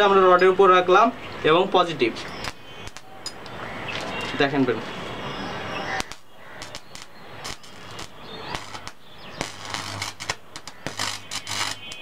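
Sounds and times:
electric arc snapping and crackling: 0:02.2 - 0:04.6, 0:05.9 - 0:12.0.

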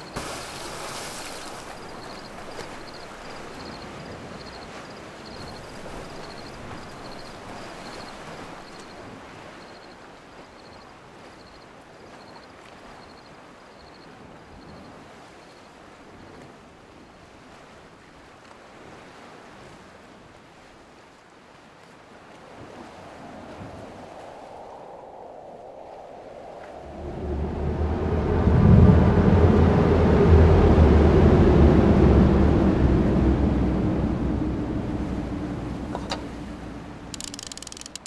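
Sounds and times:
surf: 0:00.0 - 0:09.6, 0:19.2 - 0:38.0
wind: 0:00.0 - 0:38.0.

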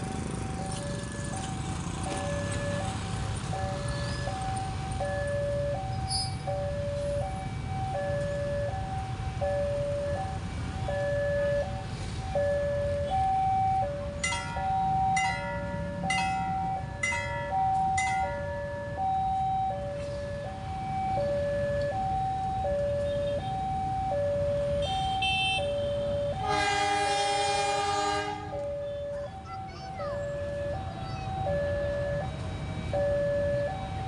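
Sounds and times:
two-tone crossing alarm chime: 0:00.0 - 0:26.9, 0:27.8 - 0:34.0
train horn: 0:24.8 - 0:28.6.

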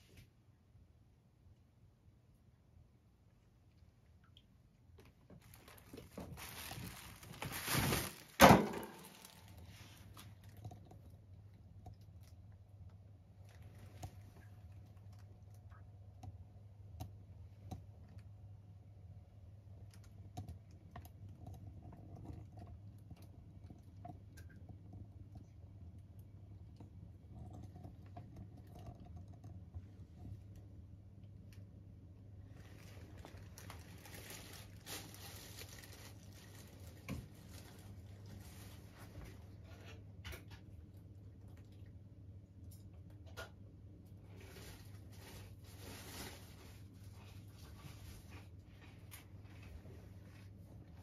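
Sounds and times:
faint steady hum: 0:00.0 - 0:51.0
rustling: 0:05.0 - 0:11.1, 0:32.4 - 0:40.0, 0:44.3 - 0:51.0.

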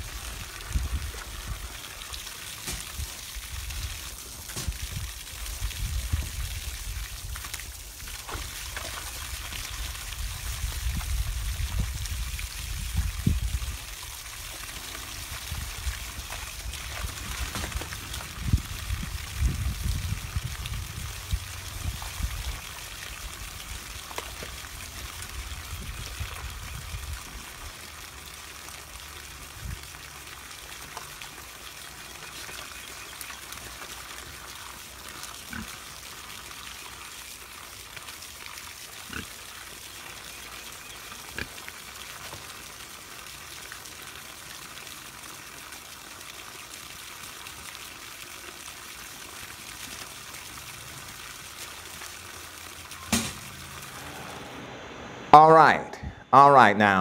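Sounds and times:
hose water splashing into mud: 0:00.0 - 0:54.2.

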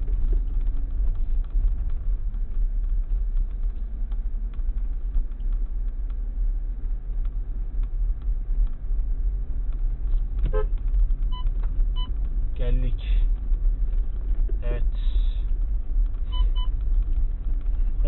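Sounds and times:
small knocks and rattles: 0:00.0 - 0:12.6
engine and tyres rumbling: 0:00.0 - 0:18.0.

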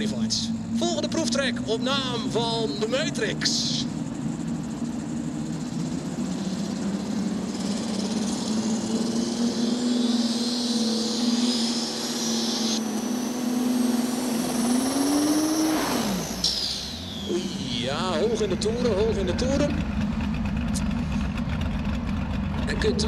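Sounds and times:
high whine: 0:00.0 - 0:23.0
tractor engines revving: 0:00.0 - 0:23.0.

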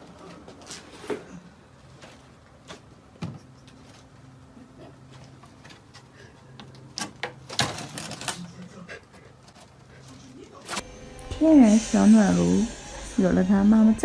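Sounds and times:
low steady hum: 0:09.4 - 0:14.0.

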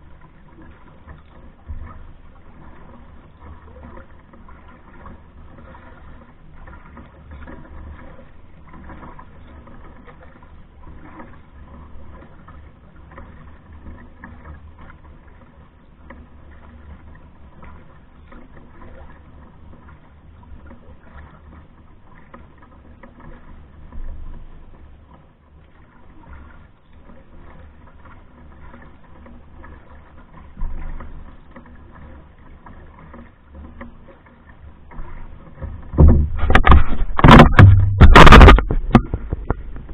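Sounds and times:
paddle splashing water: 0:00.0 - 0:39.9
knocks on canoe: 0:34.9 - 0:39.9
steady low rumble: 0:36.0 - 0:39.9.

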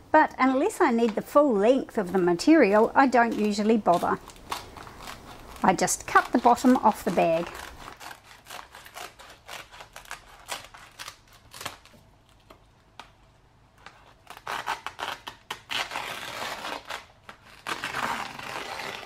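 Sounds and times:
stiff plastic crackling: 0:01.9 - 0:13.2
scissors snipping plastic bag: 0:02.6 - 0:13.2.

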